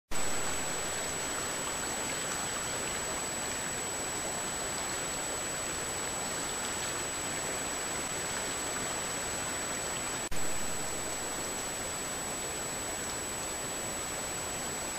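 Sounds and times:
steady hiss: 0:00.1 - 0:14.9
high-pitched electronic whine: 0:10.3 - 0:12.2.

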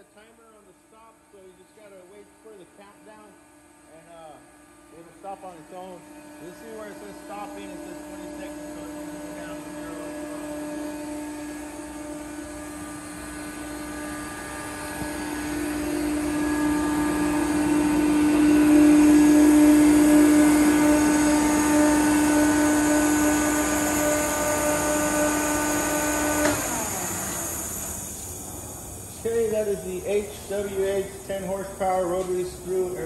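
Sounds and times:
air compressor humming and whining: 0:00.0 - 0:33.0
motor shutting off click: 0:09.6 - 0:28.4.

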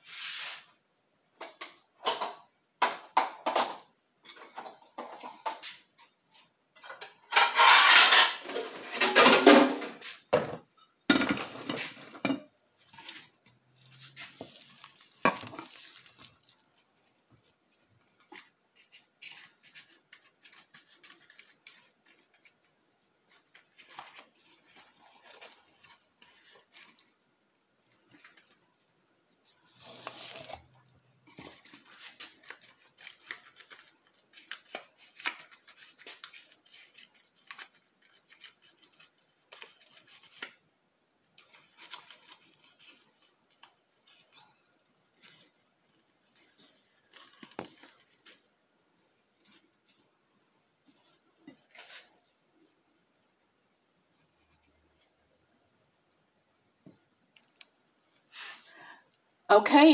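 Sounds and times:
metal bowl scraping and clattering: 0:06.7 - 0:16.7, 0:29.6 - 0:32.8.

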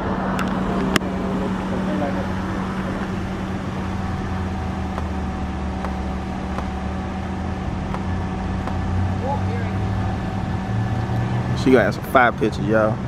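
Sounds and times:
engine idling: 0:00.0 - 0:13.0.

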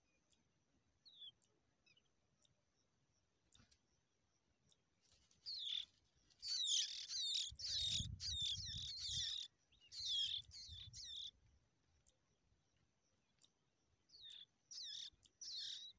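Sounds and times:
bird chicks chirping: 0:04.7 - 0:15.9.

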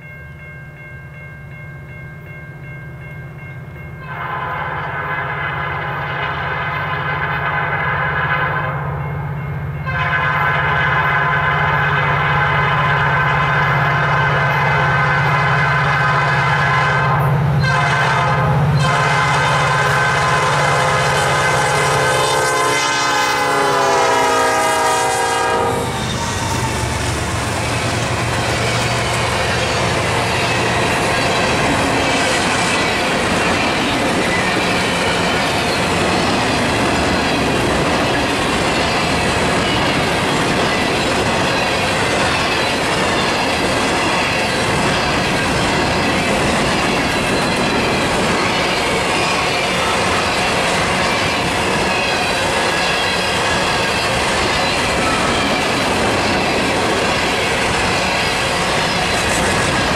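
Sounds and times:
train horn chord: 0:09.8 - 0:26.4.

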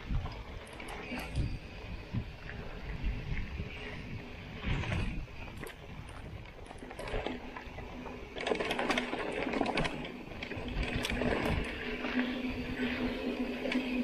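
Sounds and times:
bike tyres crunching over gravel: 0:00.0 - 0:14.0
freewheel hub buzzing: 0:00.0 - 0:14.0
clicks and rattles of stones: 0:04.6 - 0:12.4.

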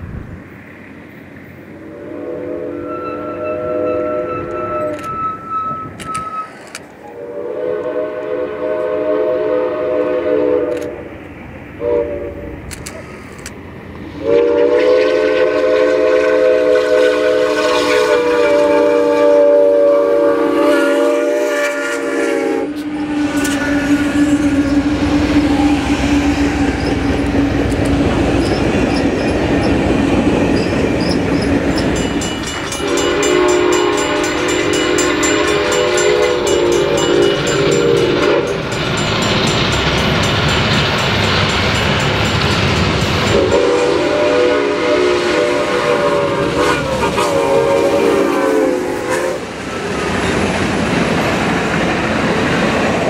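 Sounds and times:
train rumbling and clattering: 0:00.0 - 0:53.0
steam whistle chord: 0:01.9 - 0:10.9, 0:11.8 - 0:12.5, 0:14.2 - 0:27.6, 0:32.4 - 0:49.5.

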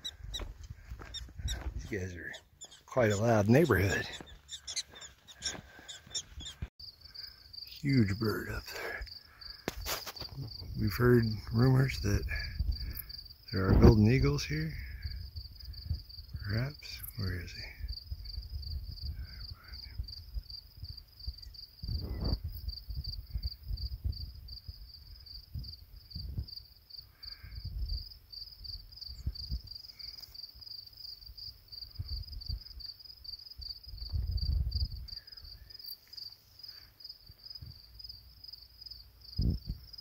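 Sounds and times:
wind rumbling on microphone: 0:00.0 - 0:02.0, 0:10.2 - 0:16.6, 0:17.6 - 0:26.6, 0:27.4 - 0:29.8, 0:31.9 - 0:32.8, 0:33.6 - 0:35.6, 0:39.3 - 0:40.0
insect trilling: 0:00.0 - 0:40.0
faint prairie dog yelps: 0:04.1 - 0:06.6.

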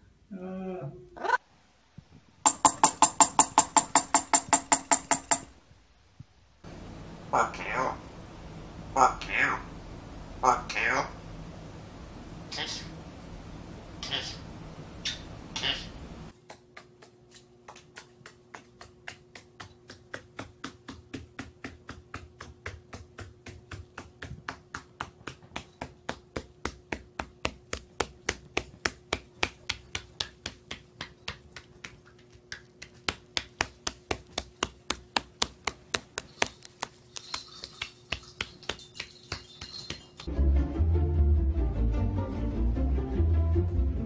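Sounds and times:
faint steady hum: 0:00.0 - 0:40.3
parrot claws clicking on wooden floor: 0:02.5 - 0:05.5, 0:16.8 - 0:40.3.

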